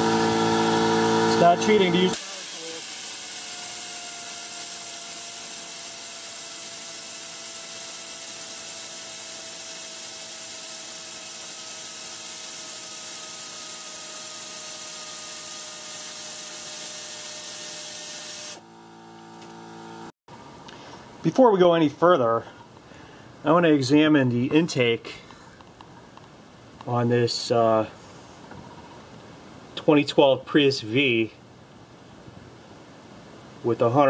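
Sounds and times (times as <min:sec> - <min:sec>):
air ratchet running: 0:02.1 - 0:18.7.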